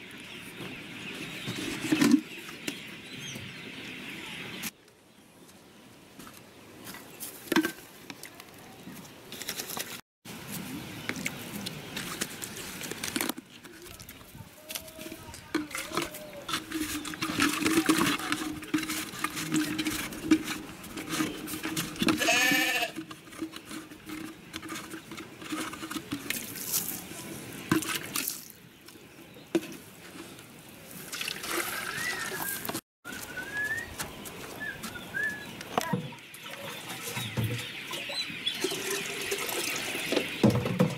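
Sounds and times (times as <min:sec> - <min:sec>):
farm animal bleating: 0:22.1 - 0:23.0
water pouring into plastic cup: 0:38.6 - 0:40.2.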